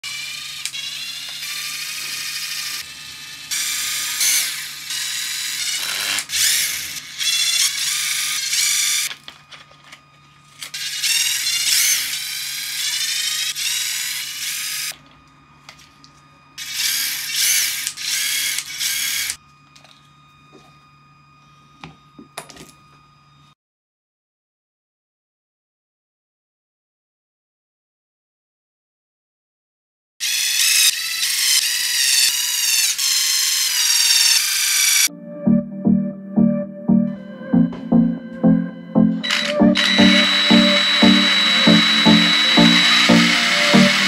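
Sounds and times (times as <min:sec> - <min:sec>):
cordless drill whining: 0:00.0 - 0:15.8, 0:16.6 - 0:20.0, 0:30.2 - 0:35.1, 0:39.2 - 0:44.0.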